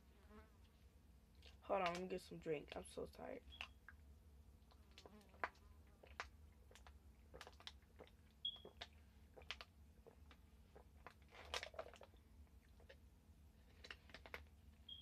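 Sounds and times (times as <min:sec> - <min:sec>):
plastic water bottle crinkling: 0:04.7 - 0:13.0, 0:13.6 - 0:15.0.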